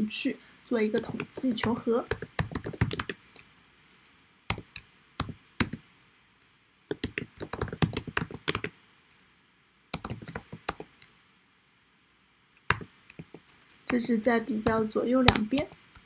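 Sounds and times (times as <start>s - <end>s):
typing on a keyboard: 1.0s - 3.3s, 4.5s - 5.8s, 6.9s - 8.7s, 10.0s - 10.9s.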